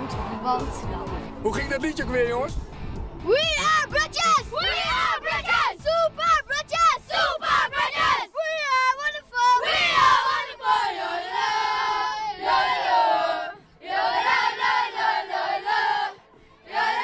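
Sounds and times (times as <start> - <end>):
boys singing a chant: 7.0 - 17.0.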